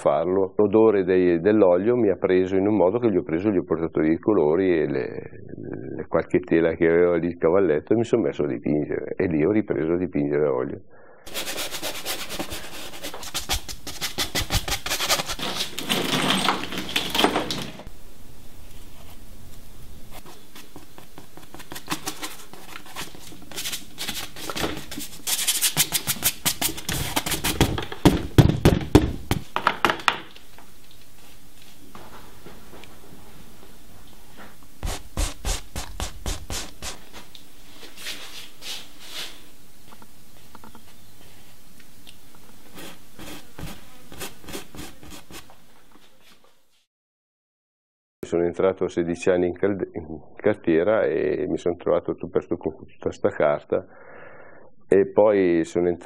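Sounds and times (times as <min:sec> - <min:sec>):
paint brush scrubbing on canvas: 0:11.3 - 0:16.2, 0:20.0 - 0:27.6, 0:34.8 - 0:39.5, 0:42.6 - 0:45.6.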